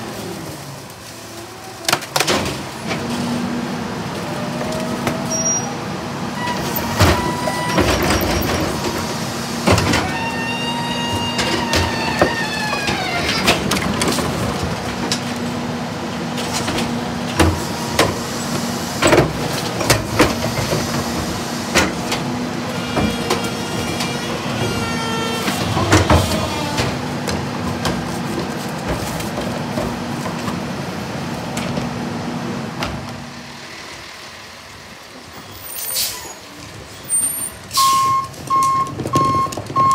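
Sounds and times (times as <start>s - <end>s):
truck engine hum: 2.5s - 39.9s
hydraulic whines: 6.4s - 13.8s.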